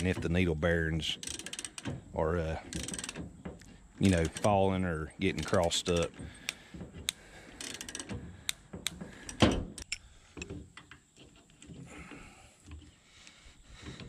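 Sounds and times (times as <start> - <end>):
metal clicks and clanks: 1.0 - 11.8.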